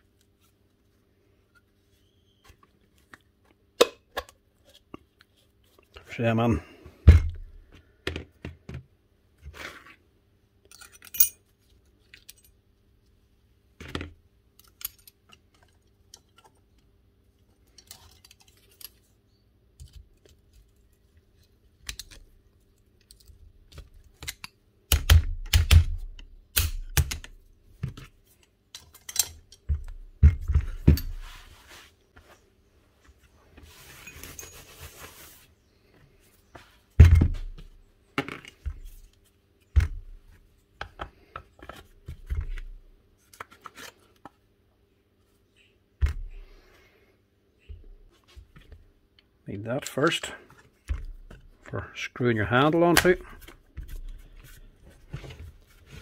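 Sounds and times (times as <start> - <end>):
small metal parts clinking: 10.7 - 11.4.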